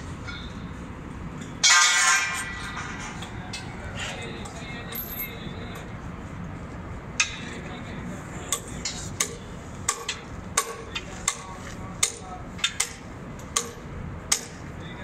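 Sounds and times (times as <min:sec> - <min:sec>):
hammer striking metal: 0:01.4 - 0:03.7, 0:08.5 - 0:14.6
background murmur: 0:02.6 - 0:15.0.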